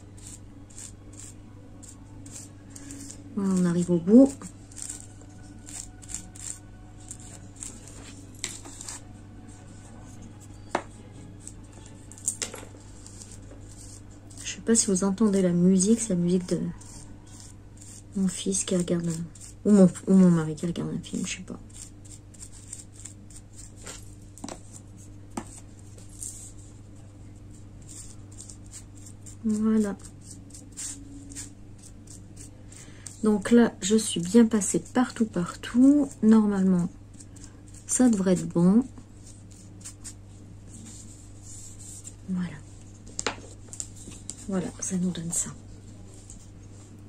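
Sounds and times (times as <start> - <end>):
paintbrush scraping a cup: 0.0 - 10.8
faint low hum: 0.0 - 47.0.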